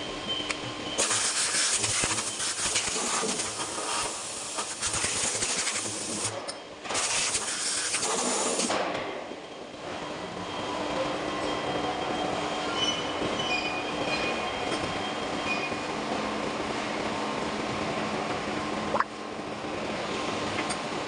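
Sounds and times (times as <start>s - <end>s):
loud hissing bursts: 1.0s - 6.3s, 7.0s - 8.7s.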